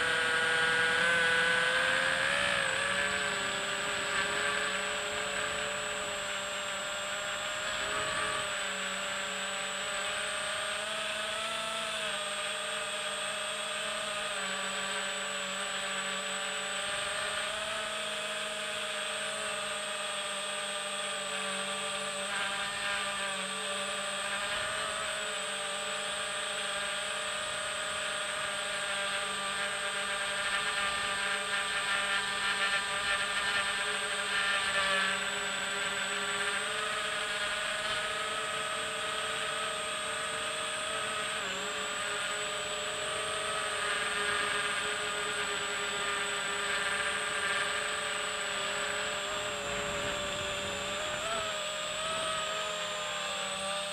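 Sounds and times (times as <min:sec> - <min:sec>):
drone motors whining: 0:00.0 - 0:53.9.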